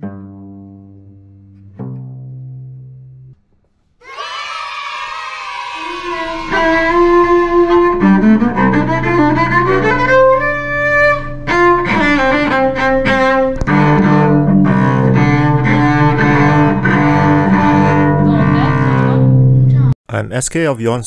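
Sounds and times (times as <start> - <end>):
cello bowed notes: 5.7 - 19.9.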